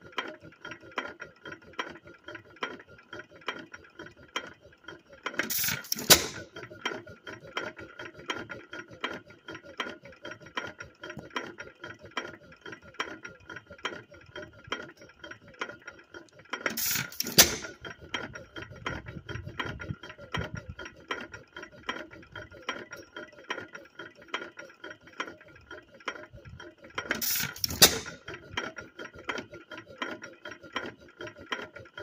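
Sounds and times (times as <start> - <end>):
engine valve gear clicking: 5.4 - 6.5, 16.7 - 17.8, 27.0 - 28.3.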